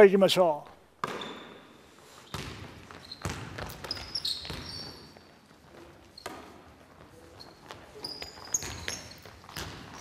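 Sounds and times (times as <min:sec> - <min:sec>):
sneaker squeaks: 0:01.0 - 0:10.0
basketball bouncing on wooden floor: 0:02.3 - 0:05.1, 0:05.7 - 0:10.0.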